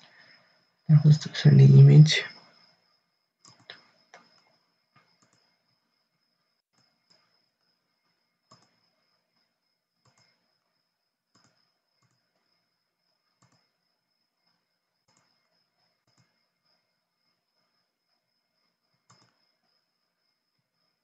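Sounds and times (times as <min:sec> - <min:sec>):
faint high whine: 0:00.0 - 0:21.0
computer mouse clicks: 0:03.4 - 0:05.5, 0:06.7 - 0:07.3, 0:08.5 - 0:08.9, 0:10.0 - 0:10.4, 0:11.3 - 0:12.5, 0:13.4 - 0:13.7, 0:15.0 - 0:15.4, 0:16.0 - 0:16.4, 0:19.0 - 0:19.6.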